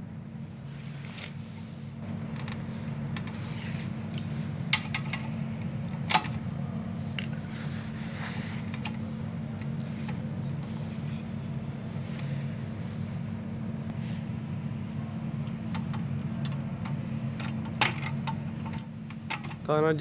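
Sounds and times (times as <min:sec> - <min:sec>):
steady low hum: 0:00.0 - 0:20.0
wires rustling and scraping: 0:00.7 - 0:05.4, 0:07.0 - 0:13.3.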